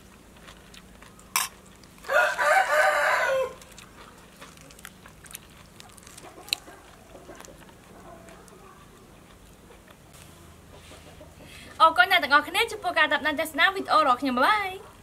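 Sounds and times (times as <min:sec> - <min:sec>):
rooster crowing: 0:02.0 - 0:03.7.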